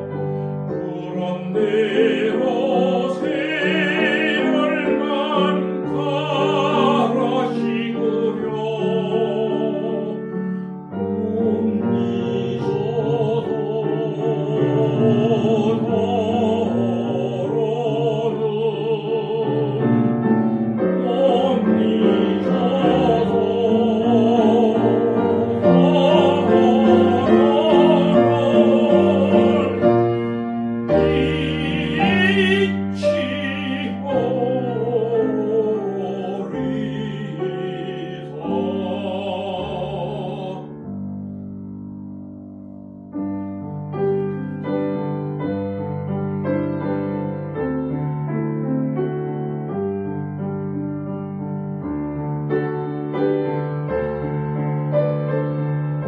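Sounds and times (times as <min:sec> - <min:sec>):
grand piano: 0:00.0 - 0:56.0
tenor singing with vibrato: 0:00.7 - 0:10.4, 0:20.9 - 0:40.8.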